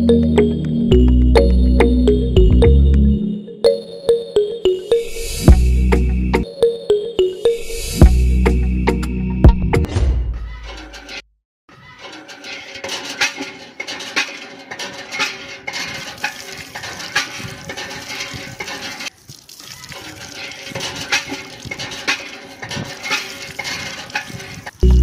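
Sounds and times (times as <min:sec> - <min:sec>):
water stream splashing into a pot: 0:15.2 - 0:24.8.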